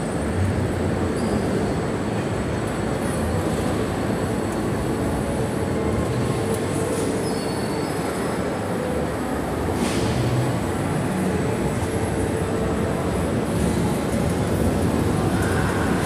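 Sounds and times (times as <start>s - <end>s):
amusement rides rumbling: 8.0s - 16.0s.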